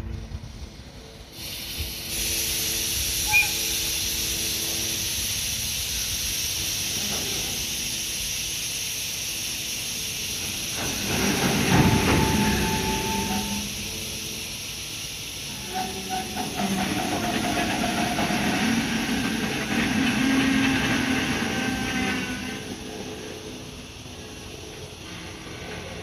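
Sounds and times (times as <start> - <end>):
locomotive hiss and hum: 0.0 - 26.0
brief metal squeal: 3.2 - 3.8, 11.8 - 13.9, 15.5 - 17.6, 20.2 - 22.8.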